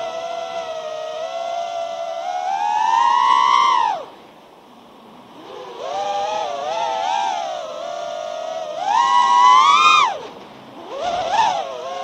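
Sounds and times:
drone motors whining: 0:00.0 - 0:04.1, 0:05.4 - 0:12.0.

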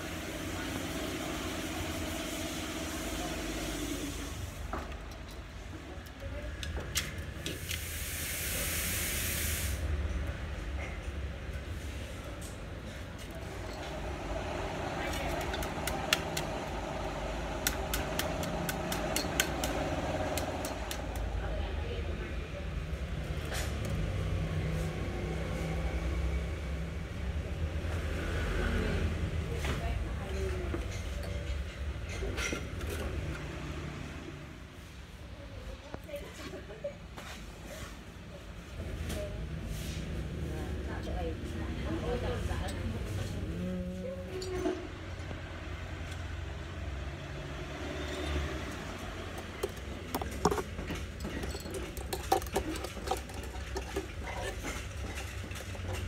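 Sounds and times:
wire scraping against steel: 0:47.8 - 0:56.0.

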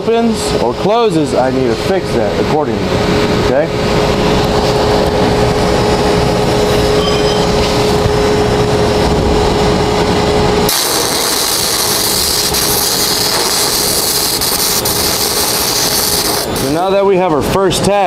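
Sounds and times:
low hum with thin whine: 0:00.0 - 0:18.0
welding arc crackling hiss: 0:10.7 - 0:16.9.

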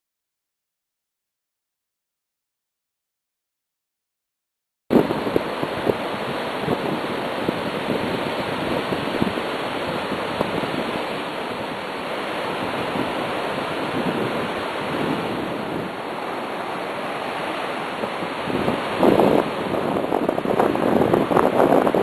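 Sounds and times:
surf washing up beach: 0:04.9 - 0:22.0.

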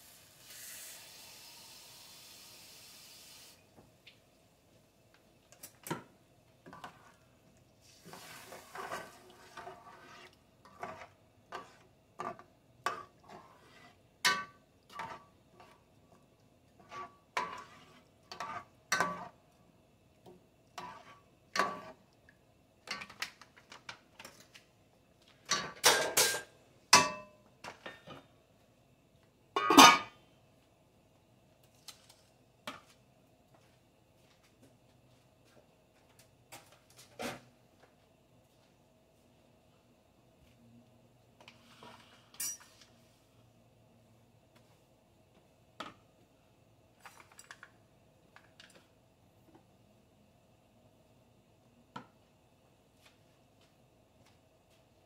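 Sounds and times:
spoon scraping in enamel pot: 0:08.0 - 0:15.8, 0:16.8 - 0:19.4, 0:20.8 - 0:22.0.

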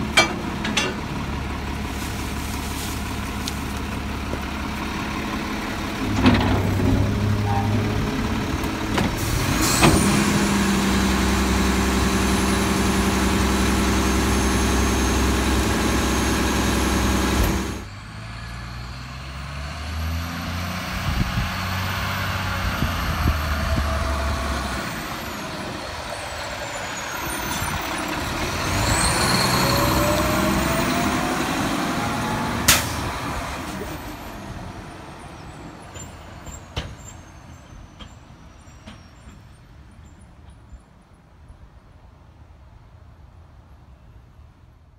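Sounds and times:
engine whine: 0:00.0 - 0:34.8
garbage truck engine rumble: 0:00.0 - 0:39.8.

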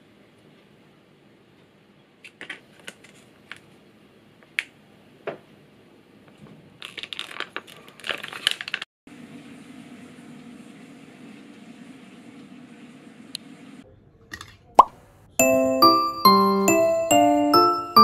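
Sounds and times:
plastic pouch crinkling and clicking: 0:06.8 - 0:08.9
pouch crackling as soup squeezed: 0:06.8 - 0:08.9.

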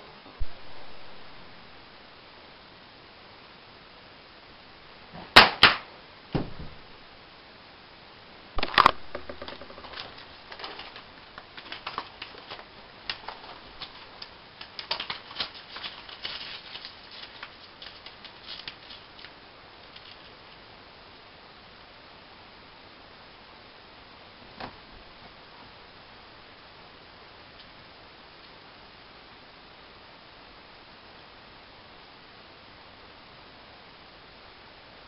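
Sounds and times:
light clicking and crackling: 0:08.7 - 0:20.6.

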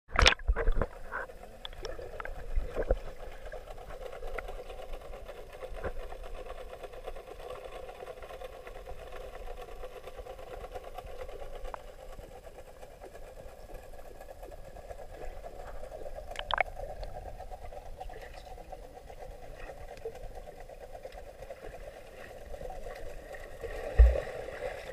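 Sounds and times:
pool equipment whirring underwater: 0:00.2 - 0:24.9
muffled splashes: 0:15.1 - 0:17.0, 0:21.1 - 0:24.9.

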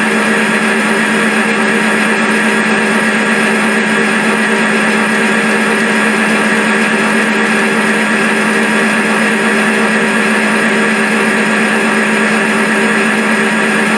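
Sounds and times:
diesel locomotive engine humming: 0:00.0 - 0:13.9.

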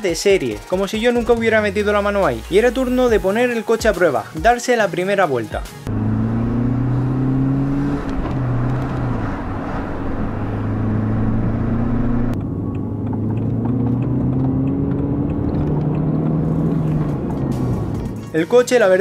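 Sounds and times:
road noise: 0:05.8 - 0:18.5
car engine accelerating: 0:05.9 - 0:18.3.

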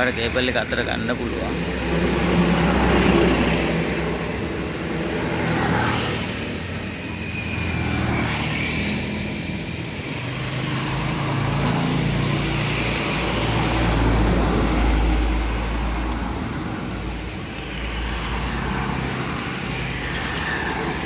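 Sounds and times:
passing road traffic: 0:00.0 - 0:21.0.

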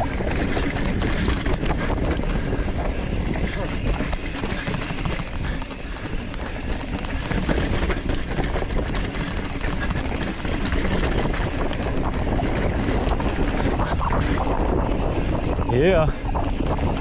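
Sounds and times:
bike rattling on bumps: 0:00.0 - 0:17.0
wind rush on microphone: 0:00.0 - 0:17.0
tyres crunching over gravel: 0:00.4 - 0:12.6.

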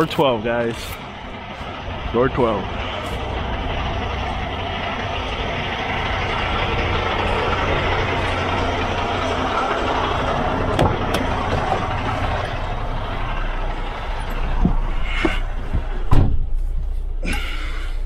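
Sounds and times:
diesel truck idling: 0:00.0 - 0:18.0
open-air noise: 0:00.0 - 0:18.0
truck cab door shutting: 0:10.7 - 0:11.9, 0:14.2 - 0:16.6.

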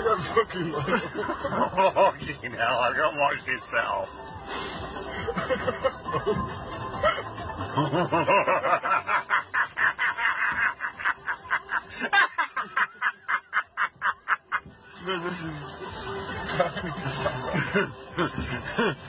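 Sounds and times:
person laughing: 0:05.1 - 0:15.6, 0:16.5 - 0:19.0.

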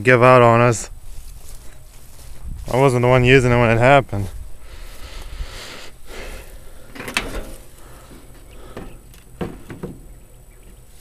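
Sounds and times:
faint rustle: 0:00.9 - 0:03.1
hands handling mower bodywork: 0:06.8 - 0:11.0.

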